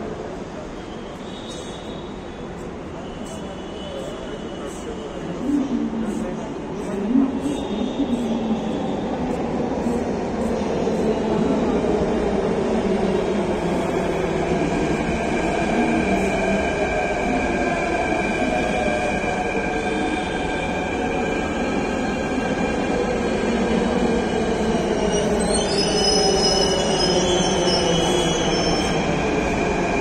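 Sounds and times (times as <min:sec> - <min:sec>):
wheels or brakes squealing: 0:25.1 - 0:29.2.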